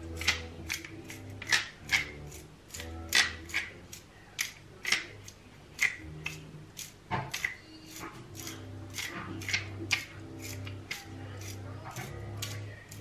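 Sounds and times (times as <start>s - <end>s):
salt grinder crunching: 0.0s - 13.0s.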